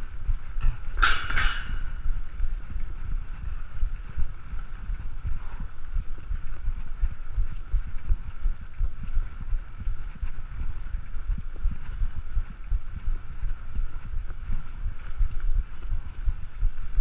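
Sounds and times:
bike ride rumble: 0:00.0 - 0:17.0
wind buffeting: 0:00.0 - 0:17.0.

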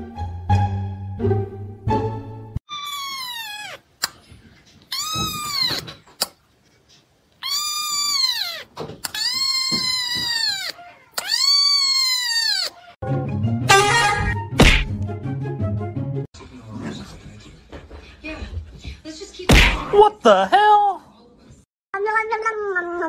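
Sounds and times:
kitten meowing: 0:02.7 - 0:03.8, 0:04.9 - 0:05.9, 0:07.4 - 0:13.0.

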